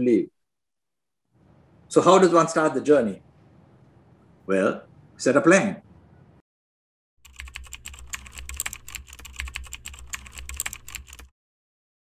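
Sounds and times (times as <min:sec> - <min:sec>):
keyboard typing clicks: 0:07.2 - 0:11.3.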